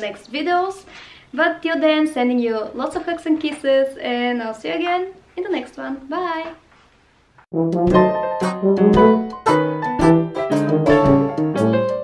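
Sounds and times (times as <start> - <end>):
piano background music: 7.5 - 12.0.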